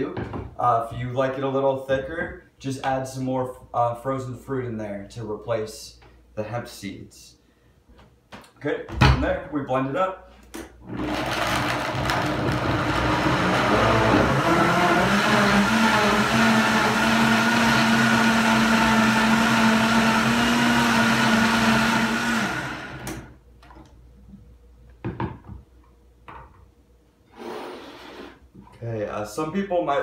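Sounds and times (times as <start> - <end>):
blender crushing frozen fruit: 10.8 - 23.3.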